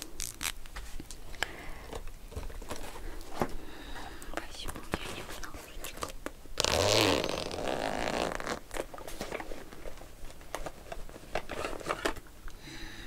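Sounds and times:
zipper pulled open: 6.6 - 8.6.

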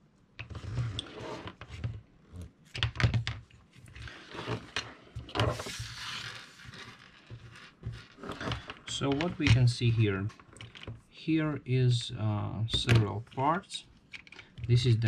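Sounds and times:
plastic parts clicking and knocking: 1.6 - 4.0, 7.2 - 11.0, 12.7 - 13.2, 14.1 - 14.8
plastic scraping rustle: 3.8 - 9.5.

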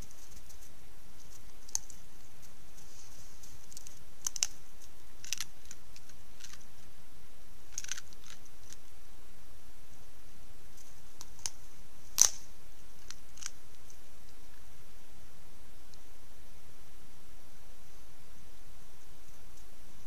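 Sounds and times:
faint crunching clicks: 0.0 - 6.9, 7.7 - 9.0
microphone hiss: 0.0 - 20.0.

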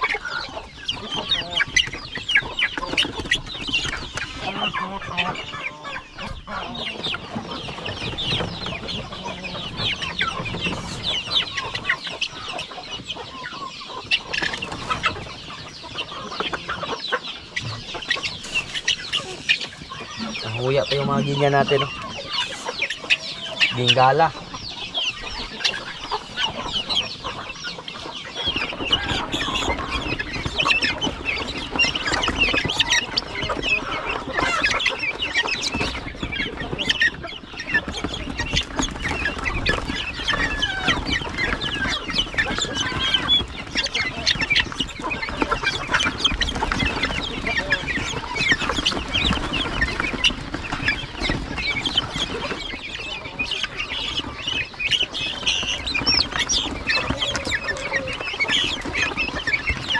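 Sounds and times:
young guinea fowl chirping: 0.0 - 59.9.

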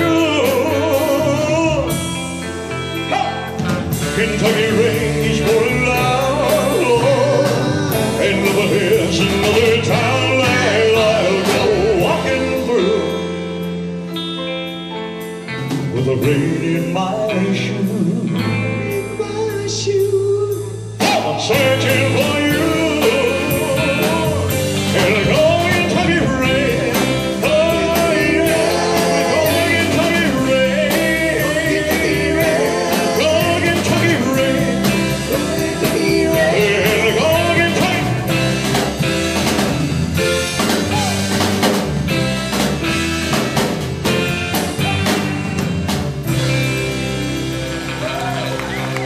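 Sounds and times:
man singing: 0.0 - 13.7, 15.7 - 39.6
rock band playing ballad: 0.0 - 49.0.

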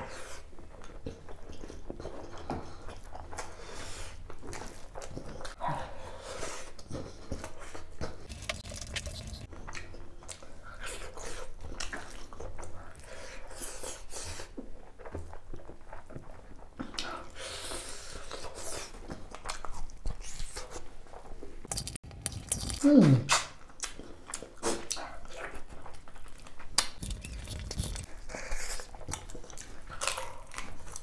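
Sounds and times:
food crunch: 8.0 - 10.0, 21.7 - 24.5, 25.5 - 31.0
person chewing and biting: 8.0 - 12.7, 21.7 - 31.0.

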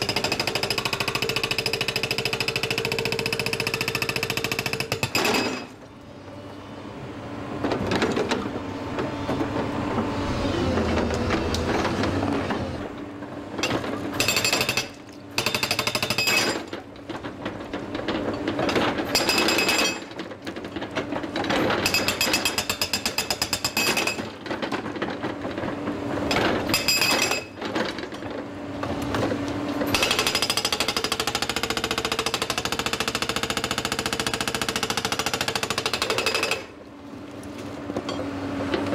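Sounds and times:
hydraulic breaker hammering rock: 0.0 - 5.8, 13.6 - 28.3, 29.1 - 36.8
excavator engine running: 5.8 - 21.9.

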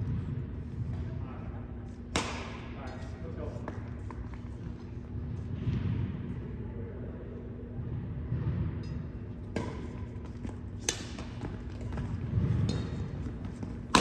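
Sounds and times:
rackets striking shuttlecock: 2.0 - 2.8, 8.9 - 14.0
footsteps on wooden court: 10.0 - 14.0.

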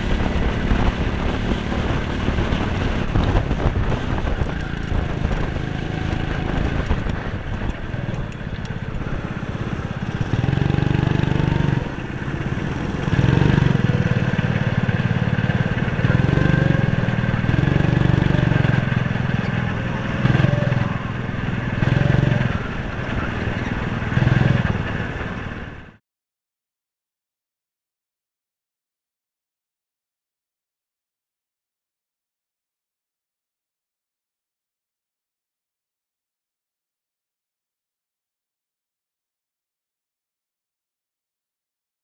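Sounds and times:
go-kart engine running: 0.0 - 26.0.

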